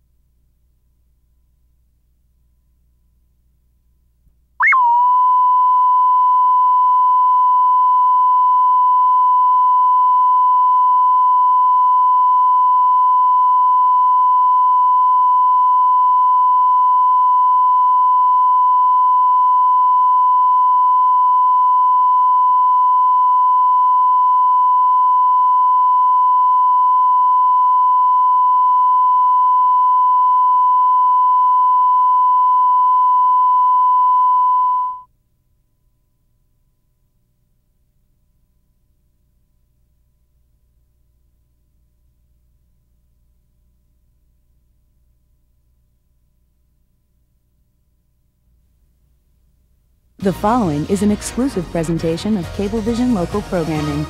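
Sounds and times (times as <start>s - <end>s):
steady reference tone: 4.6s - 35.1s.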